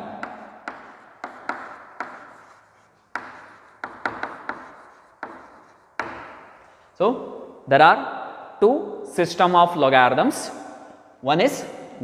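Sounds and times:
chalk tapping on blackboard: 0:00.0 - 0:07.0.

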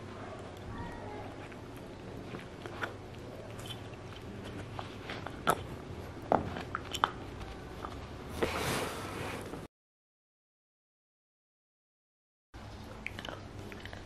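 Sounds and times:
dog gnawing antler: 0:00.1 - 0:08.1.

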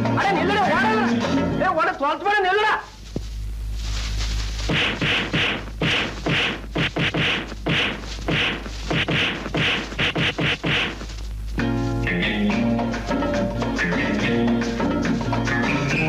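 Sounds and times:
steady low hum: 0:02.8 - 0:16.0
sharp dry percussive hits: 0:04.7 - 0:11.1.

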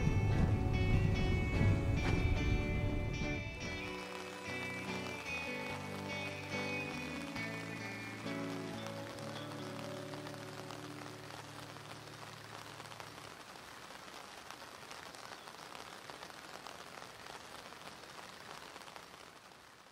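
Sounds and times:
low music chord: 0:00.0 - 0:11.1
steady rain falling: 0:00.0 - 0:19.9.

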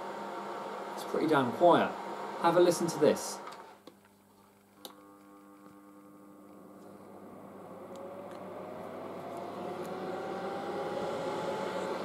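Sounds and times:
hair dryer fan whirring: 0:00.0 - 0:03.9, 0:04.8 - 0:12.0
rising whine: 0:04.9 - 0:12.0.

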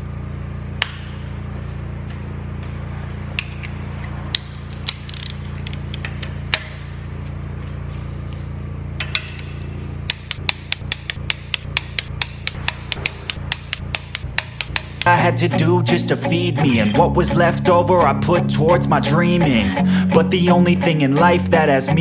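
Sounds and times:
low steady hum: 0:00.0 - 0:22.0
ratchet wrench clicking: 0:04.3 - 0:06.3, 0:10.1 - 0:15.1.

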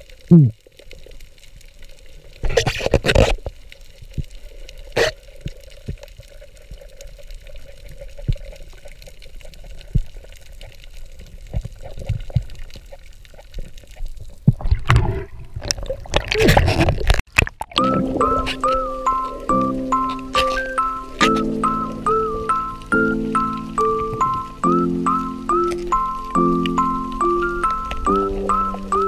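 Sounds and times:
water moving and bubbling: 0:00.0 - 0:29.0
water splashing: 0:00.0 - 0:29.0
clicks underwater: 0:02.4 - 0:03.6, 0:11.5 - 0:18.8
water rushing: 0:04.6 - 0:29.0.

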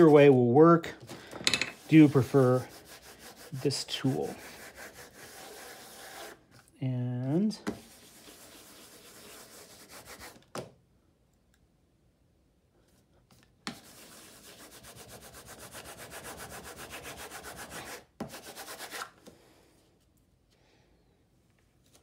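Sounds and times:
baren rubbing over paper: 0:01.7 - 0:06.4, 0:07.8 - 0:10.4.

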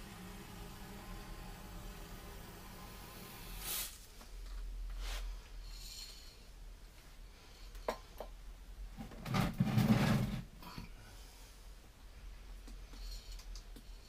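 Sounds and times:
door scraping on concrete: 0:09.2 - 0:10.5.

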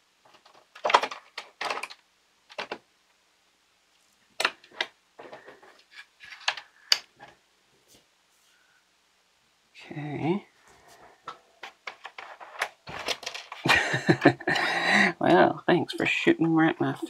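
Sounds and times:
plastic parts clicking and knocking: 0:00.2 - 0:02.9, 0:04.4 - 0:07.4, 0:11.3 - 0:14.7.

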